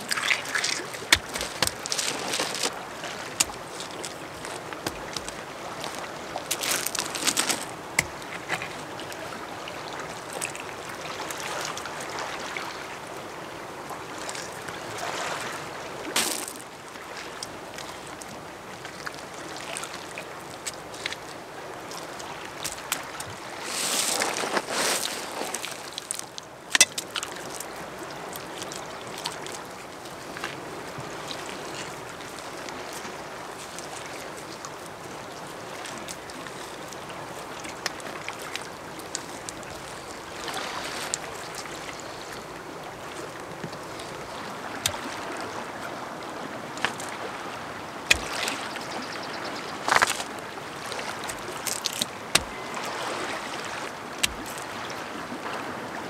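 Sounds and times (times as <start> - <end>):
water lapping at shore: 0.0 - 56.0
sharp knocks of stones: 48.1 - 48.4.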